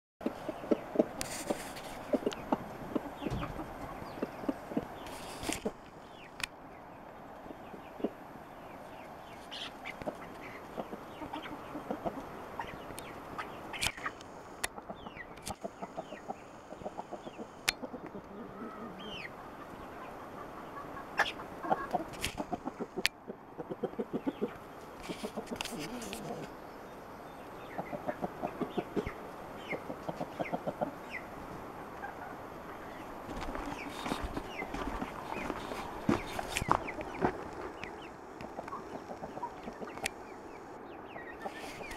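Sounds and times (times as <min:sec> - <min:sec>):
chickens clucking: 0:00.2 - 0:06.5, 0:07.4 - 0:26.7, 0:27.4 - 0:41.9.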